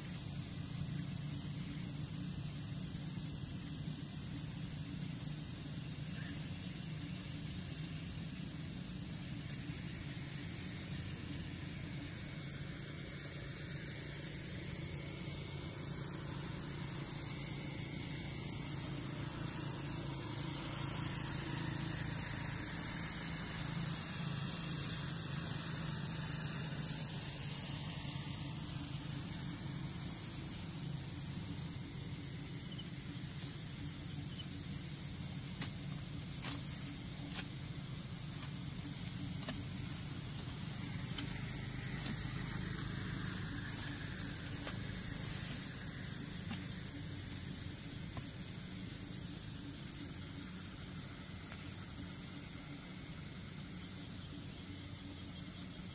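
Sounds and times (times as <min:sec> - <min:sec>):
night insects droning: 0:00.0 - 0:55.9
outdoor night hiss: 0:00.0 - 0:55.9
blade digging into soil: 0:35.4 - 0:42.6.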